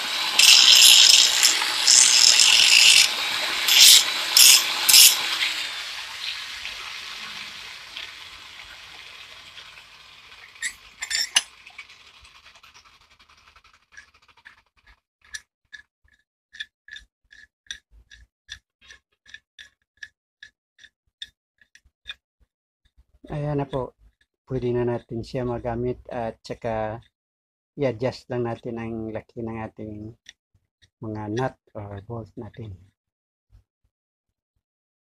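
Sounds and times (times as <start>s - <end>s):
hiss: 3.7s - 5.2s.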